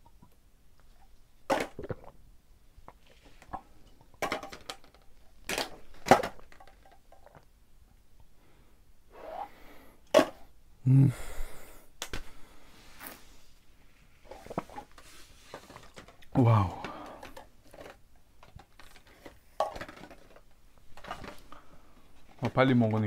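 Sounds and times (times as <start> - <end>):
person gulping: 1.5 - 2.3, 16.2 - 17.4
plastic bottles clicking: 3.4 - 7.5, 15.6 - 21.6
heavy breathing: 8.4 - 10.1, 10.8 - 13.6, 16.4 - 17.4
person grunting: 10.8 - 11.5, 16.3 - 17.2.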